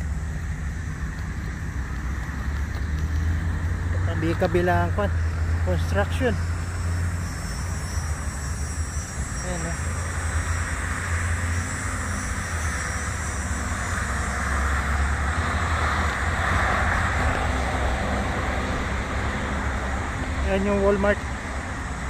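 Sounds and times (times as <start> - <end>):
deep traffic rumble: 0.0 - 22.0
passing cars rushing: 0.0 - 22.0.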